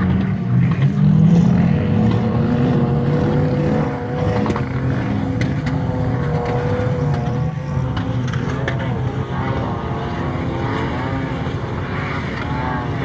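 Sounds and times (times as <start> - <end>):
off-road engines revving: 0.0 - 13.0.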